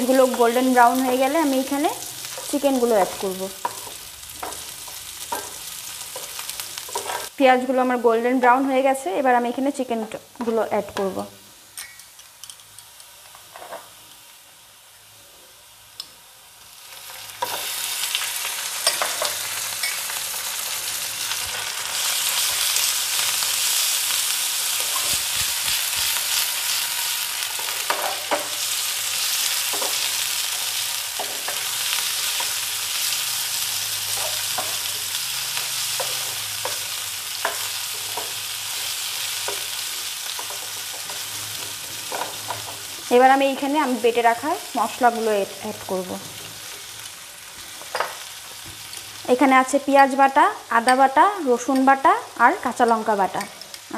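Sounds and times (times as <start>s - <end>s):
chicken sizzling in hot oil: 0.0s - 9.9s, 11.6s - 53.9s
wooden spatula scraping a pan: 6.3s - 7.3s.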